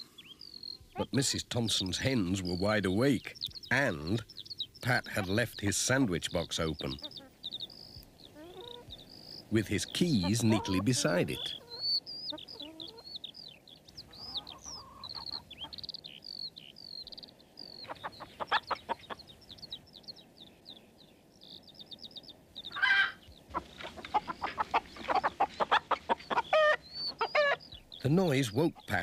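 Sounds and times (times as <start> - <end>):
hen clucking: 0.0 - 20.1, 22.6 - 29.0
small birds chirping: 0.0 - 29.0
hen squawk: 6.8 - 9.4, 10.0 - 13.2, 14.0 - 15.8, 17.7 - 19.2, 22.7 - 27.7.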